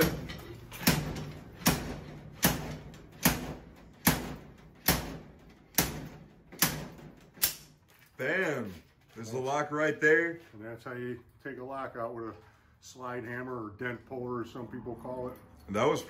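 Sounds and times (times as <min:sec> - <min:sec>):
slide hammer metallic clanks: 0:00.0 - 0:07.7.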